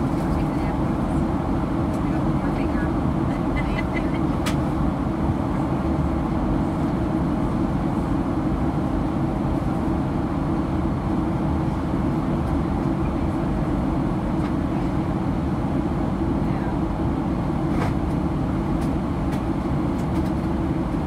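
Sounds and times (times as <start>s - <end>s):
airplane cabin roar: 0.0s - 21.0s.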